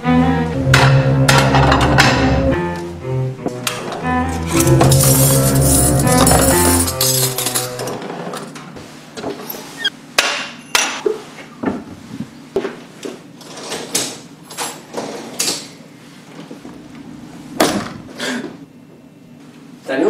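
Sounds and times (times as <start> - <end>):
dishes and cutlery clinking: 4.5 - 8.1.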